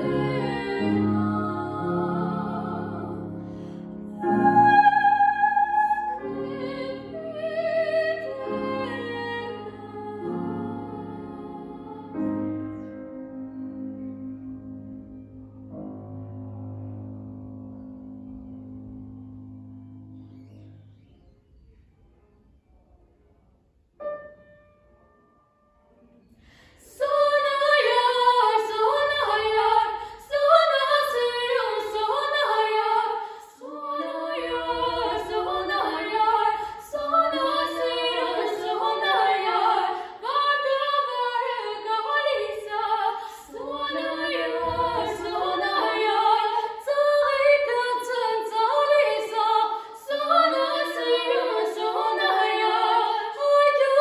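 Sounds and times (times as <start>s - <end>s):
girls singing a duet: 0.0s - 13.2s, 26.5s - 54.0s.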